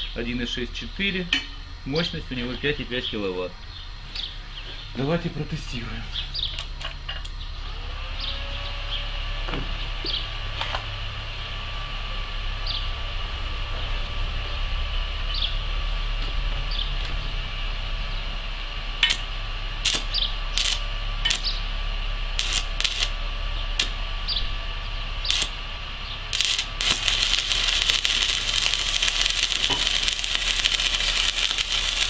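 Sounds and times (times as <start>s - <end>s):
electrode tapping on steel: 1.3s - 1.6s, 19.0s - 21.6s, 22.4s - 23.1s, 25.2s - 25.6s, 26.3s - 32.0s
welding arc crackling sizzle: 17.3s - 32.0s.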